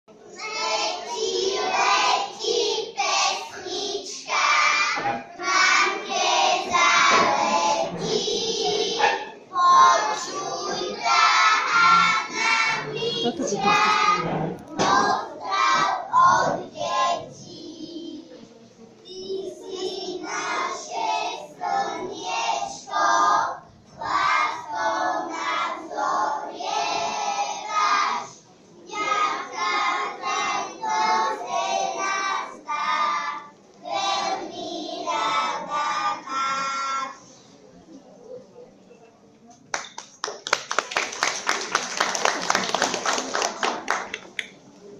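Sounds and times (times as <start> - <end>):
young children singing: 0.2 - 37.5.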